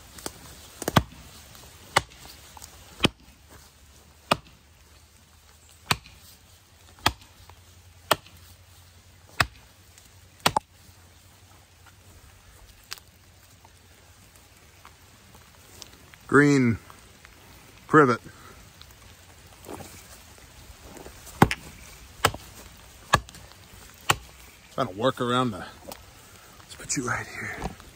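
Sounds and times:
axe chopping sapling: 0.2 - 3.4, 4.1 - 4.7, 5.7 - 8.6, 9.2 - 10.8, 21.0 - 24.7.

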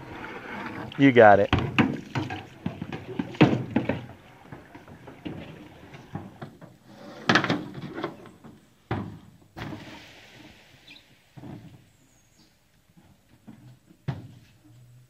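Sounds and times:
knocks on an aluminum canoe: 1.5 - 5.5.

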